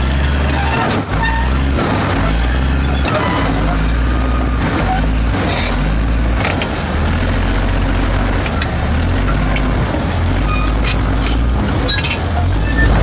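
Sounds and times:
bulldozer diesel engine rumbling: 0.0 - 13.0
metallic squeaks and clanks: 0.3 - 5.9, 8.4 - 13.0.

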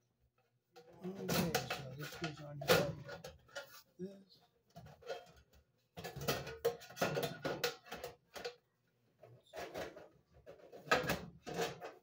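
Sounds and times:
sheet metal cover rattling and scraping: 0.8 - 3.9, 4.7 - 8.6, 9.4 - 12.0.

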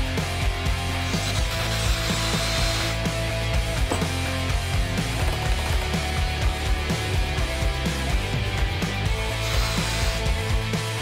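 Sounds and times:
rock music with guitar and drums: 0.0 - 11.0.

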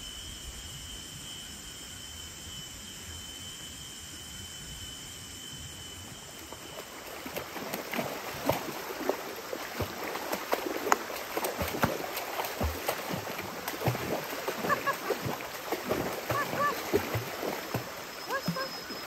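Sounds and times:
water splashing: 6.6 - 19.0
stream rushing over rocks: 7.4 - 19.0.

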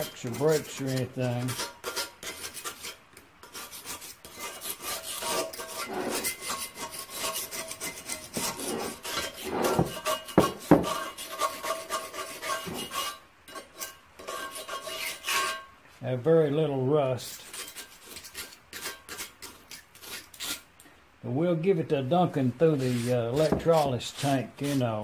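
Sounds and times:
rag rubbing on metal plate: 0.0 - 15.6, 22.7 - 25.0.

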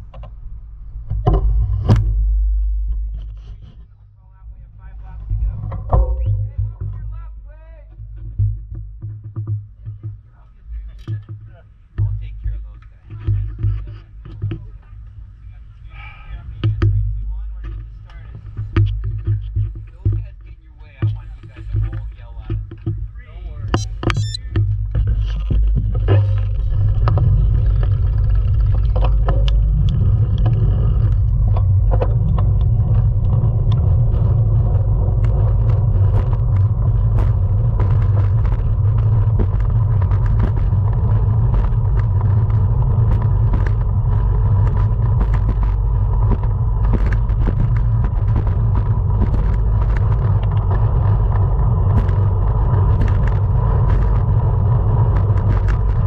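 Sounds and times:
wind rumble on microphone: 0.0 - 56.0
small clicks and ticks: 7.9 - 15.2, 16.6 - 56.0
faint high whine: 23.2 - 24.6.

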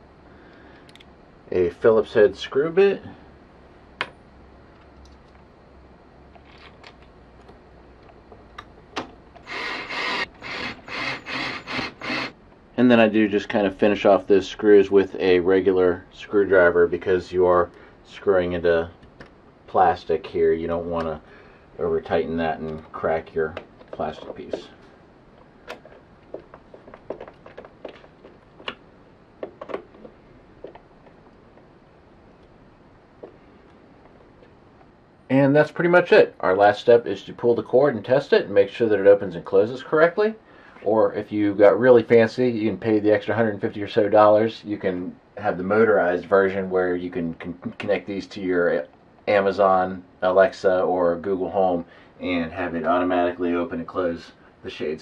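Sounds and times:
screwdriver clicking and creaking: 9.4 - 12.4.

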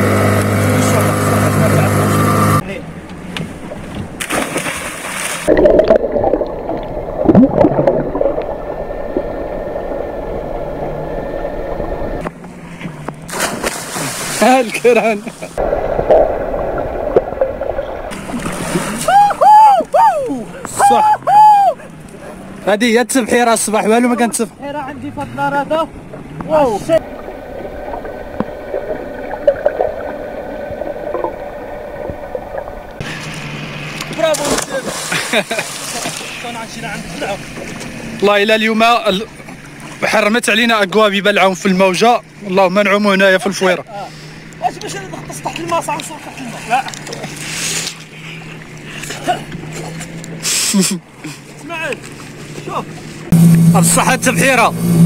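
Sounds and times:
low underwater hum: 0.0 - 55.0
water and wind noise: 0.0 - 55.0
underwater breath bubbles gurgling: 5.5 - 12.2, 27.0 - 33.1.

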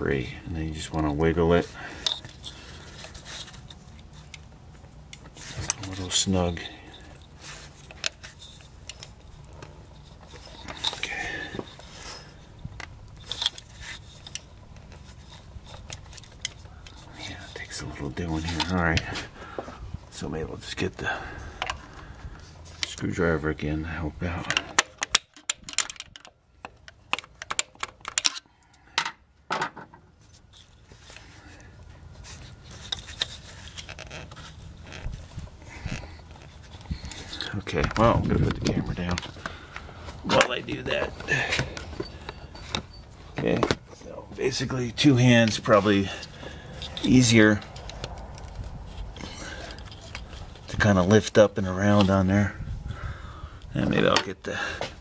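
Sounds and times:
scraping rustle: 0.6 - 24.8, 30.1 - 53.1
small metal clicks and knocks: 24.4 - 31.3.

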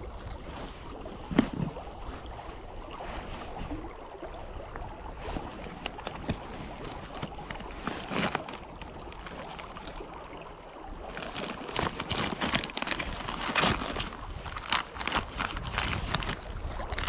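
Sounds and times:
clothing rustling and crackling: 0.0 - 4.0, 5.1 - 10.2, 11.0 - 17.0
wind buffeting microphone: 13.8 - 17.0.

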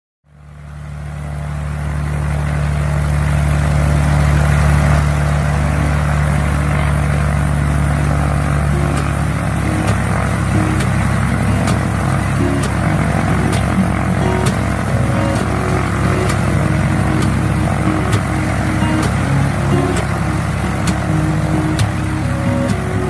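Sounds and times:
airplane piston engine and propeller: 0.3 - 23.0.

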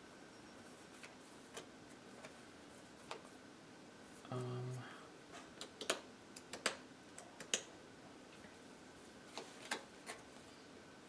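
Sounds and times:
playing cards clicking and tapping: 5.6 - 7.7.

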